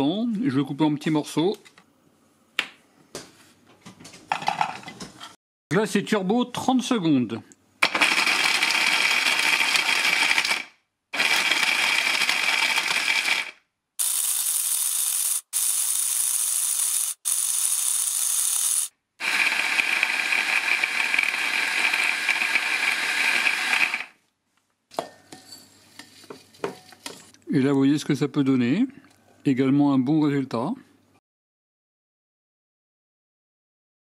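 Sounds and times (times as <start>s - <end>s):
hand blender chopping cheese: 11.2s - 24.1s.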